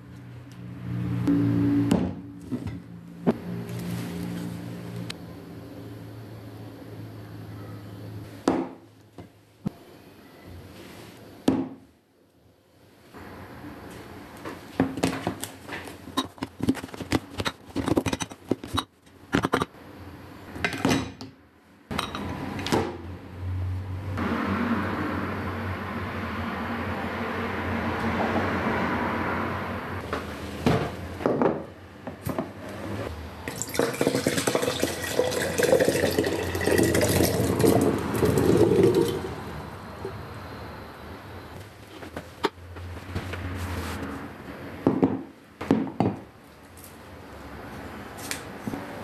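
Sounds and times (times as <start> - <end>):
tap water running into sink: 33.5 - 39.3.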